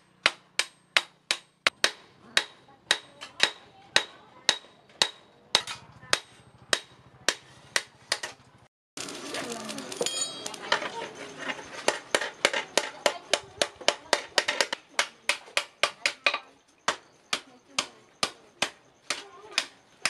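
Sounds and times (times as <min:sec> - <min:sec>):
hammer striking steel on anvil: 0:00.0 - 0:08.3.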